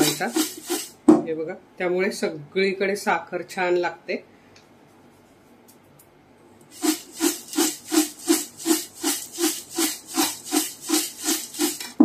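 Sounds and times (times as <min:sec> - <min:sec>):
dry snack tossed in steel tin: 0:00.0 - 0:01.0, 0:06.7 - 0:12.0.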